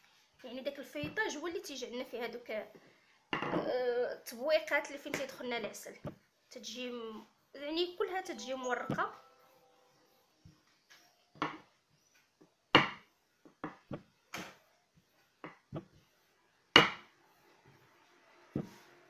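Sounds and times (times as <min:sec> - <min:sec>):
rolling pin knocking on table: 0:12.8 - 0:13.0, 0:16.8 - 0:17.0.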